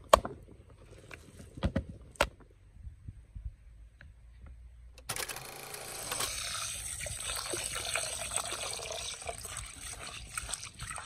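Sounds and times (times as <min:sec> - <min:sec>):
water pouring into a pot: 0:06.3 - 0:11.0.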